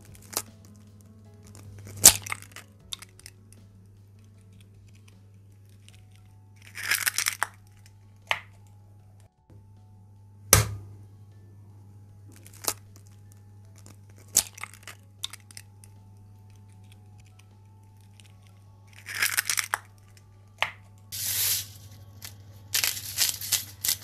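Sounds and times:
steady low hum: 0.0s - 24.0s
shell crackling apart: 1.6s - 3.5s, 4.1s - 8.7s, 12.3s - 24.0s
eggshell cracking on glass bowl: 16.5s - 20.8s.

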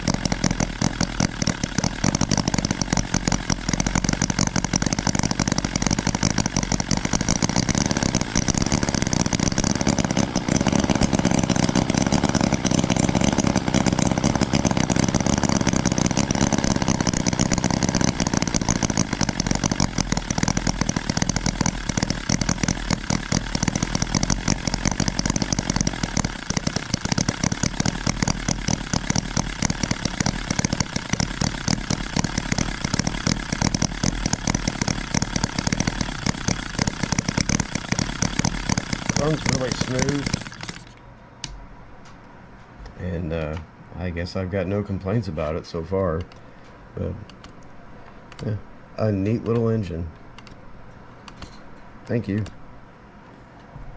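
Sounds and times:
model engine running: 0.0s - 41.0s.

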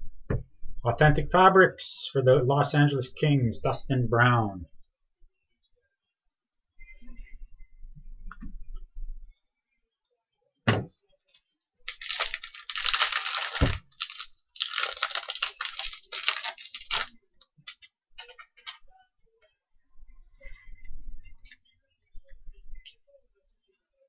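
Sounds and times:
wrapper crackling and ripping: 11.8s - 18.8s.

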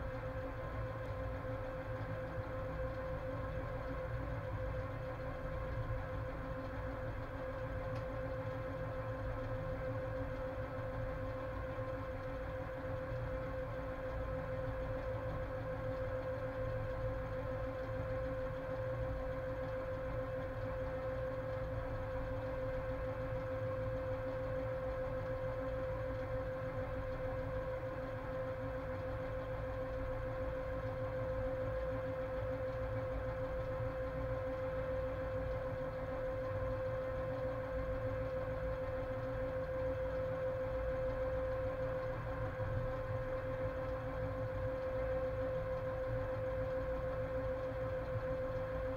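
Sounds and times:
steady mid-pitched hum: 0.0s - 48.9s.

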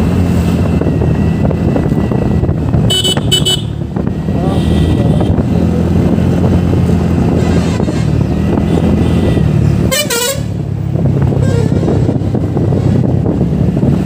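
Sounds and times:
wind and road noise: 0.0s - 14.0s
vehicle horn blast: 2.9s - 3.7s, 8.7s - 10.6s.

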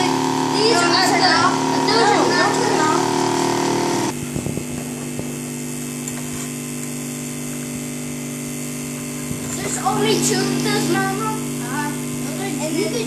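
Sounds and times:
higher-toned machine layer: 0.0s - 4.2s
motor humming: 0.0s - 13.0s.

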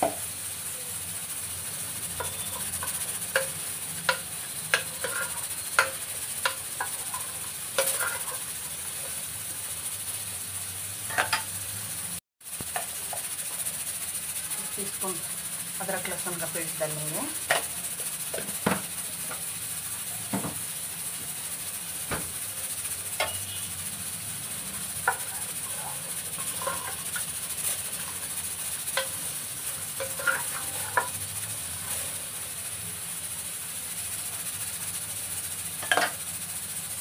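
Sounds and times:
meat sizzling in hot oil: 0.0s - 37.0s
wooden spoon scraping pot: 4.7s - 9.1s, 25.0s - 28.4s, 30.0s - 31.2s.

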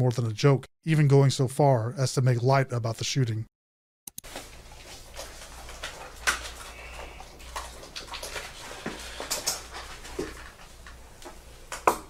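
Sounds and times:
sniffs and breaths: 6.4s - 7.7s, 8.3s - 10.1s.

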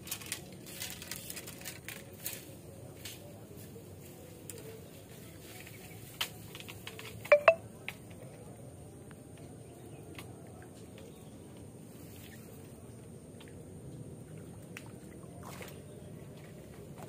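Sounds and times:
sharp short clicks with ringing tone: 7.3s - 7.6s.

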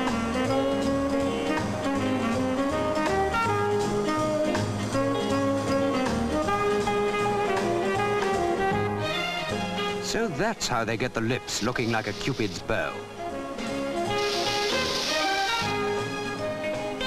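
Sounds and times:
jazz music with saxophone: 0.0s - 17.0s.

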